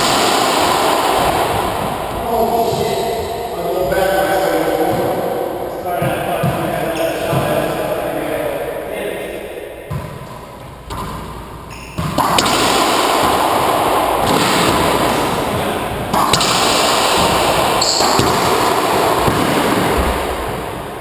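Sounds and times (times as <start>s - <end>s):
loud steady rushing noise: 0.0s - 6.0s, 12.2s - 21.0s
racquetball cracks: 9.9s - 20.9s.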